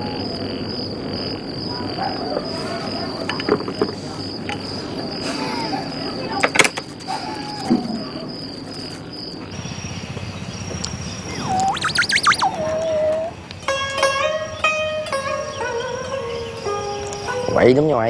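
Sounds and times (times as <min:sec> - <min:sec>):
night insects trilling: 0:00.0 - 0:18.0
frog calls: 0:11.0 - 0:13.6
man whistling through hands: 0:11.3 - 0:13.4.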